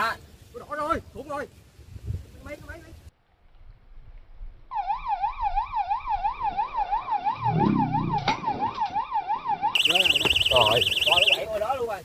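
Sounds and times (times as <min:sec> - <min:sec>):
higher-pitched alarm: 0:04.7 - 0:11.6
bite alarm wailing: 0:06.0 - 0:11.5.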